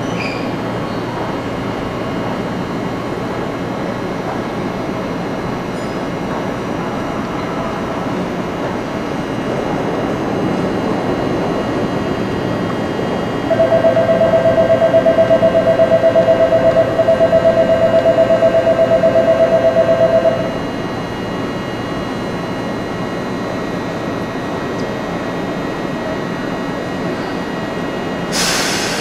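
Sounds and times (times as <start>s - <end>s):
train hum and hiss: 0.0s - 29.0s
two-tone electronic bell ringing: 13.5s - 20.6s.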